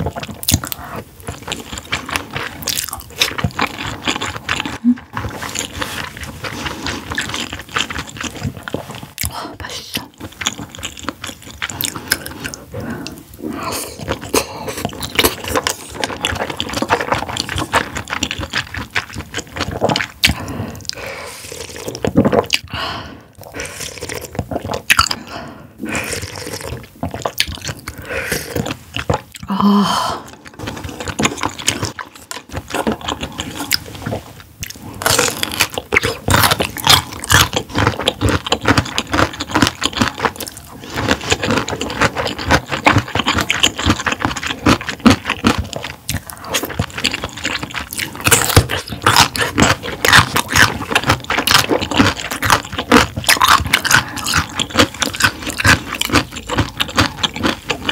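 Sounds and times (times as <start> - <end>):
crunching bites: 0.0 - 4.8, 34.6 - 57.9
person chewing wetly: 0.0 - 57.9.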